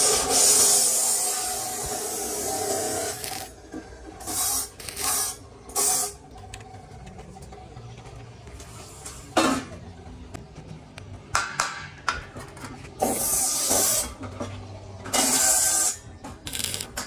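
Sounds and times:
crackling welding arc hiss: 0:00.0 - 0:03.6, 0:04.2 - 0:06.2, 0:15.2 - 0:17.0.

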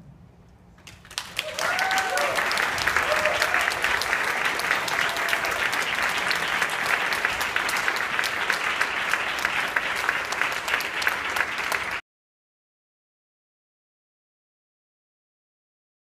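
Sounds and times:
audience applauding: 0:00.8 - 0:12.0.

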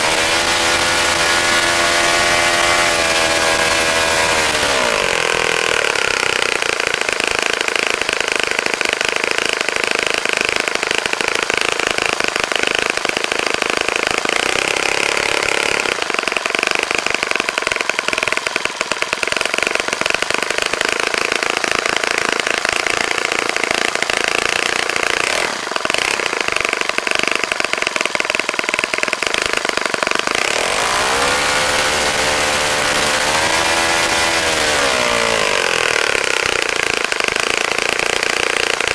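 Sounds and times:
model engine buzzing drone: 0:00.0 - 0:38.9.

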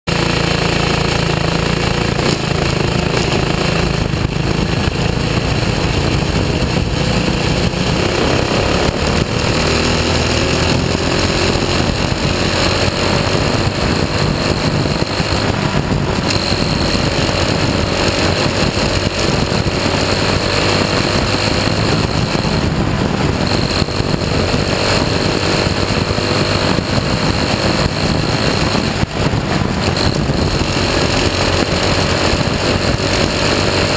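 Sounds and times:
race car engine running hard: 0:00.1 - 0:33.9.

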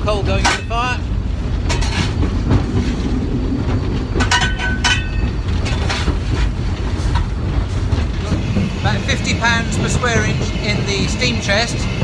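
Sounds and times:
steam locomotive rumbling: 0:00.0 - 0:12.0
metallic clatter and ringing: 0:04.2 - 0:06.5.

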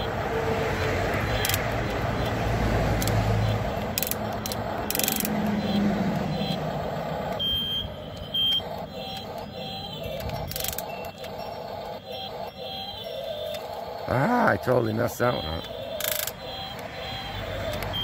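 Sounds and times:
electric motors and gears whirring: 0:00.0 - 0:18.0
short high beeps: 0:07.4 - 0:13.2.

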